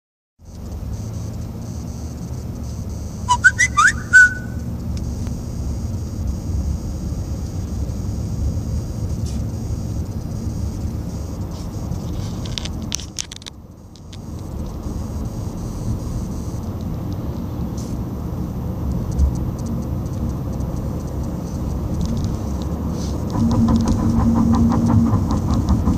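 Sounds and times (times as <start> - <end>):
car engine and tyres rumbling: 0.4 - 25.9
rising whistle-like chirps: 3.3 - 4.6.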